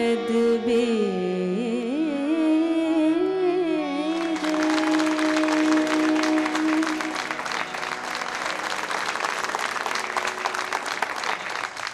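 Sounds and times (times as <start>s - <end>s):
held accompaniment note: 3.8s - 11.6s
audience applauding: 4.1s - 11.9s.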